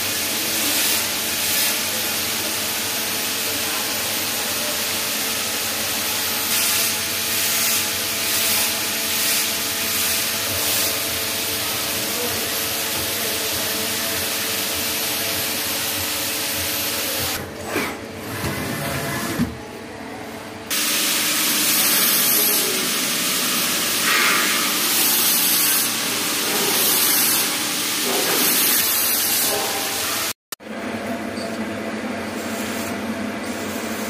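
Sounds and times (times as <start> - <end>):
coolant spraying hiss: 20.7 - 30.1.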